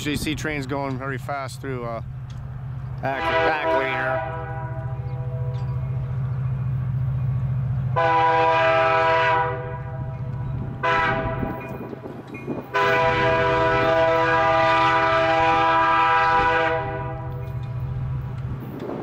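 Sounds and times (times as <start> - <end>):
locomotive horn blasts: 3.0 - 5.7, 7.9 - 11.8, 12.7 - 17.6.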